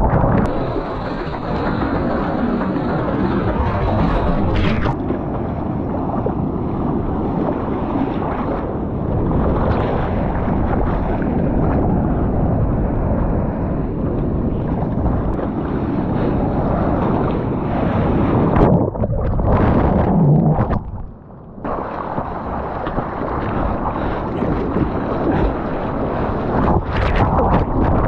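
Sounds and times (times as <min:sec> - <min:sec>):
waves breaking: 0:00.0 - 0:28.0
water sloshing against camera: 0:18.3 - 0:25.8.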